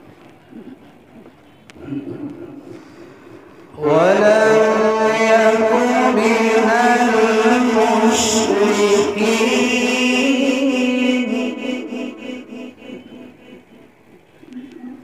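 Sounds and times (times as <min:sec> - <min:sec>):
man chanting melodically: 0:03.8 - 0:15.0.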